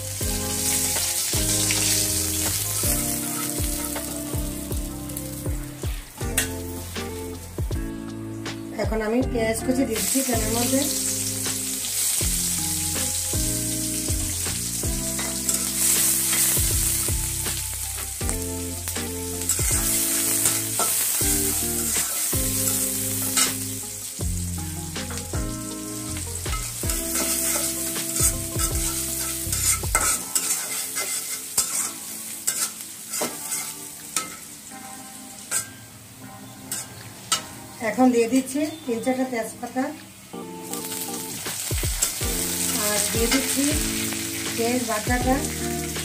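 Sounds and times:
onion sizzling in oil: 0:00.0 - 0:08.8, 0:09.6 - 0:46.0
metal spatula scraping pan: 0:27.1 - 0:27.8, 0:28.9 - 0:34.5.

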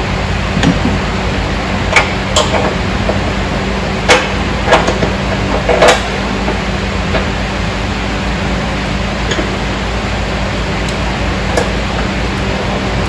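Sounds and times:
clicks and knocks of car parts: 0:00.6 - 0:01.1, 0:01.9 - 0:03.3, 0:04.0 - 0:07.4, 0:09.2 - 0:09.6, 0:10.9 - 0:12.2.

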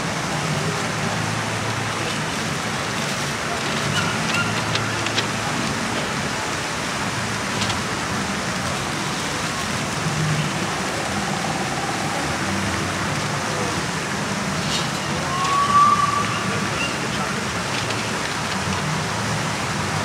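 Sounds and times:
faint murmur of people: 0:00.0 - 0:20.0
even rushing noise: 0:09.0 - 0:18.2
brief high tone: 0:15.2 - 0:17.0.

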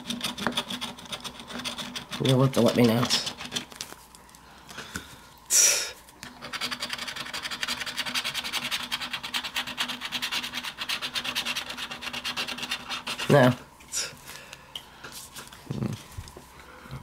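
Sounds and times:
lottery ticket being scratched: 0:00.0 - 0:03.8, 0:06.4 - 0:13.6.

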